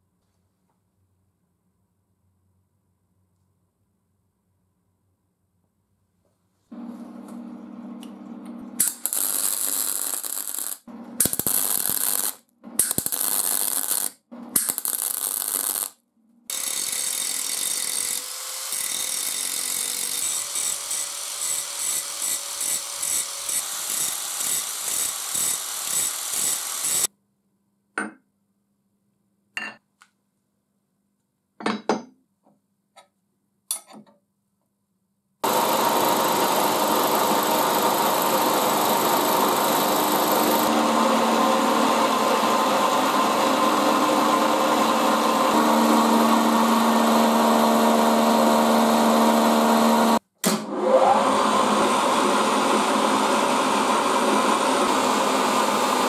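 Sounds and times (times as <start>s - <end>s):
angle grinder grinding metal: 8.8s - 15.9s, 16.5s - 27.1s, 35.4s - 50.2s
milling machine cutting: 16.5s - 27.1s, 35.4s - 50.2s, 51.1s - 56.0s.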